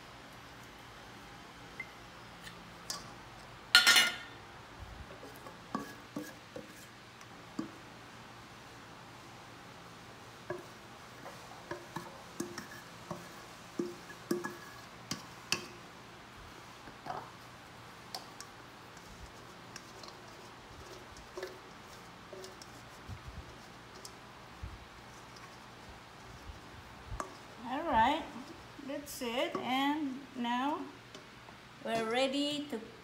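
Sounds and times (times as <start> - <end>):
metal cup clinking against bowl: 3.8 - 4.3.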